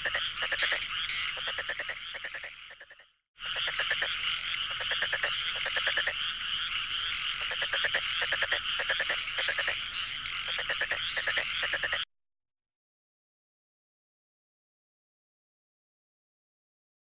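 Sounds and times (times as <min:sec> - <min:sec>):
frogs croaking: 0:00.0 - 0:12.1.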